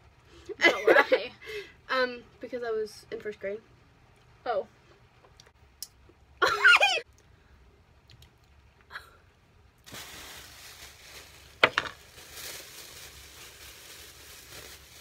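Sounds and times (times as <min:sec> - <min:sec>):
plastic bag crinkling: 0:09.8 - 0:15.0.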